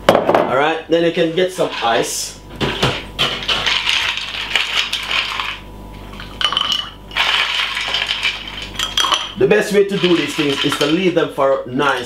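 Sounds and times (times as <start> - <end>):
ice cubes clinking in glass: 2.8 - 11.3.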